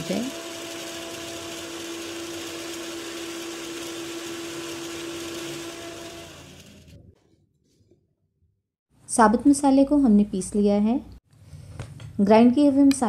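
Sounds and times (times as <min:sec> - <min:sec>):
mixer grinder grinding spices: 0:00.0 - 0:07.0.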